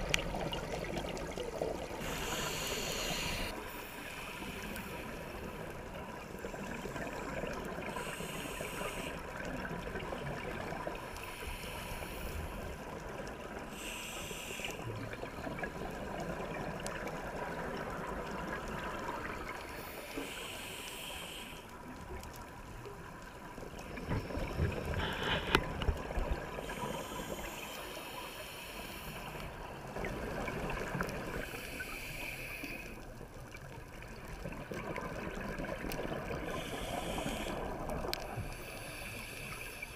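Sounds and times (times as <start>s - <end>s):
bubbles gurgling underwater: 0.0s - 2.1s, 33.9s - 38.4s
regulator inhale hiss: 2.0s - 5.7s, 7.2s - 9.5s, 11.0s - 12.9s, 13.6s - 15.3s, 19.3s - 22.0s, 24.0s - 25.9s, 26.5s - 29.9s, 31.4s - 33.1s, 36.4s - 39.9s.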